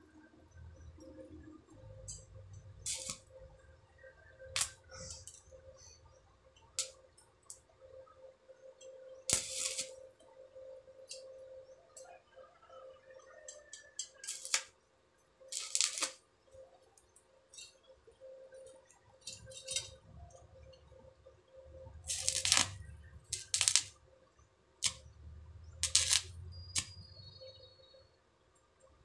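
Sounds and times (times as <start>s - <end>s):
faint steady hum: 0.0s - 29.0s
welding arc crackling: 2.8s - 3.3s, 4.5s - 5.6s, 6.8s - 7.6s, 9.3s - 10.0s, 14.0s - 14.7s, 15.5s - 16.2s, 19.2s - 20.0s, 21.7s - 24.0s, 24.8s - 27.1s.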